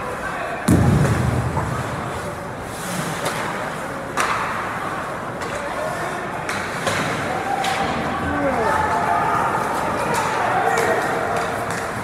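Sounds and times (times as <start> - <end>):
skating rink hum: 0.0 - 12.0
low boom from boards: 0.7 - 2.4
hockey stick crack: 1.0 - 5.6.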